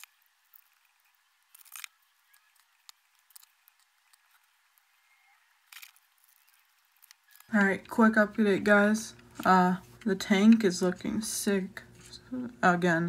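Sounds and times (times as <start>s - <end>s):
plastic pieces clicking together: 0.0s - 4.5s, 5.6s - 7.5s.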